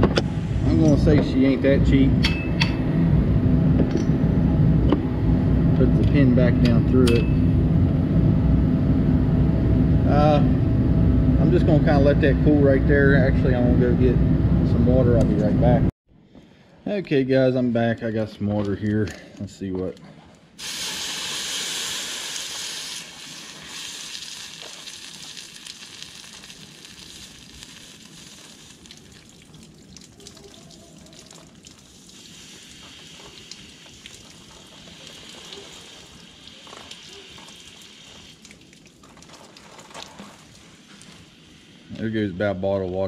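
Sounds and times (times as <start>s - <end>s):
water hissing on hot metal: 20.6s - 43.0s.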